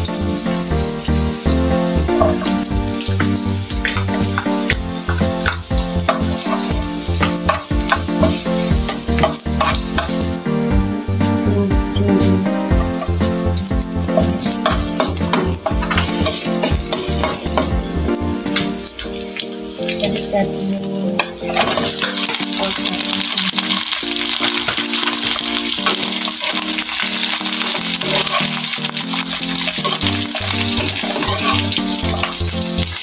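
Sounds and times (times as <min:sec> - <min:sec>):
background music: 0:00.0 - 0:33.0
food sizzling in hot oil: 0:00.0 - 0:33.0
metal ladle clicking on pan: 0:14.2 - 0:17.7.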